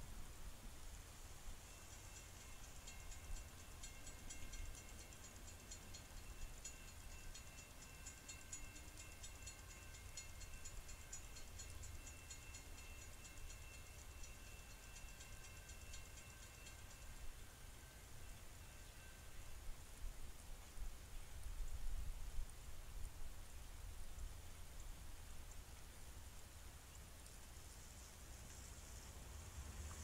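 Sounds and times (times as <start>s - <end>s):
railroad crossing bell ringing: 1.6s - 19.6s.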